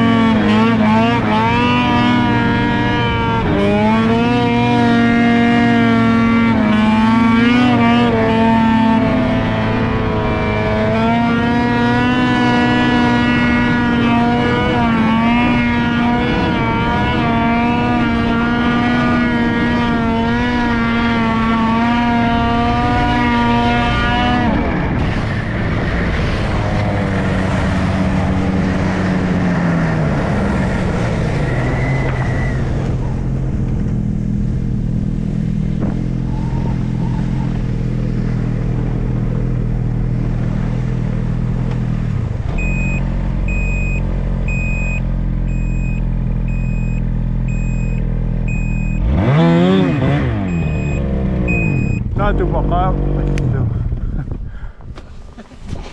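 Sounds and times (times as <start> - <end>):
snowmobile engine revving and idling: 0.0 - 55.9.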